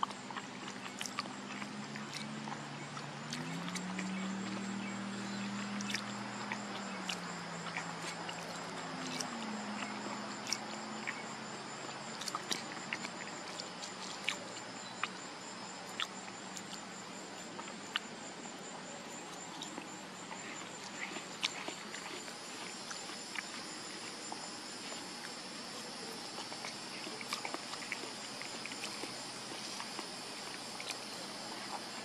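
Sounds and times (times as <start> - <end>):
insects trilling: 0.0 - 32.0
low hum shifting in pitch: 0.9 - 18.2.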